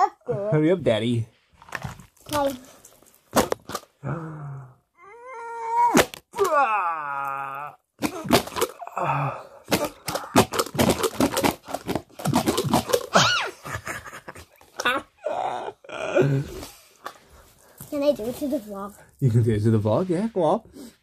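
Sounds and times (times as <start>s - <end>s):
party blowers tapping cards: 9.7s - 13.2s.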